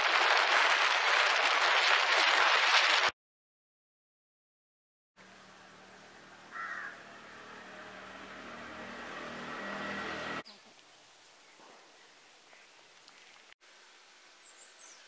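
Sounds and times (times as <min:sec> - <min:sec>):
faint outdoor background: 0:05.2 - 0:15.0
motor scooter engine running: 0:05.5 - 0:10.4.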